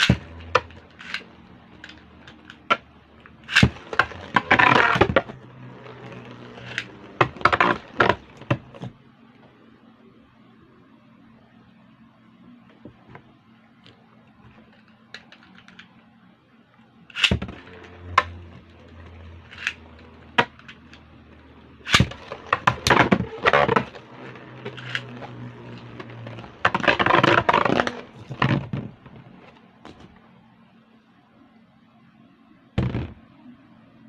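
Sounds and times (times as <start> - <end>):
spinning tops whirring: 0.0 - 8.8, 17.1 - 28.5
spinning tops clashing and clicking: 17.2 - 17.8.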